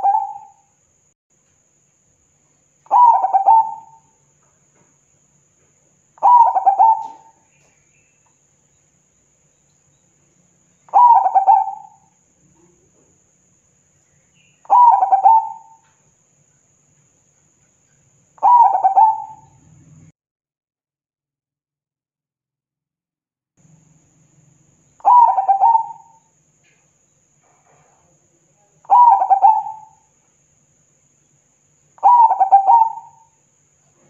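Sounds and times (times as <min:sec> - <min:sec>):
dove cooing: 0:00.0 - 0:00.6, 0:02.9 - 0:04.1, 0:06.2 - 0:07.8, 0:10.9 - 0:12.9, 0:14.6 - 0:15.9, 0:18.4 - 0:19.7, 0:25.0 - 0:26.2, 0:28.9 - 0:30.0, 0:32.0 - 0:33.3.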